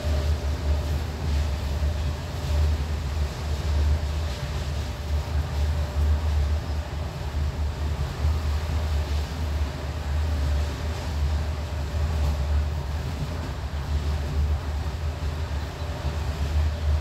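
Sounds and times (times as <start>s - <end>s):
rushing wind: 0.0s - 17.0s
train rumbling: 0.0s - 17.0s.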